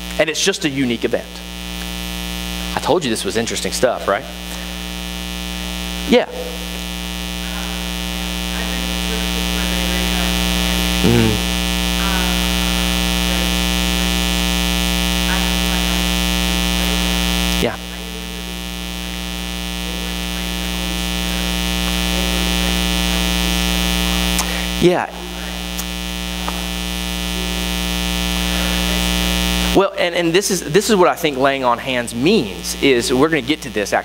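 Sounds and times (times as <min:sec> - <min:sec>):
loud electrical buzz: 0:00.0 - 0:34.0
faint distant voice: 0:07.4 - 0:11.4.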